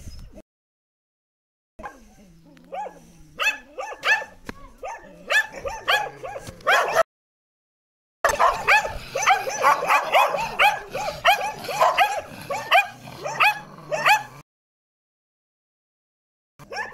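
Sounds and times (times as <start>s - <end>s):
dogs barking: 2.7s - 7.1s, 8.3s - 14.4s, 16.6s - 16.9s.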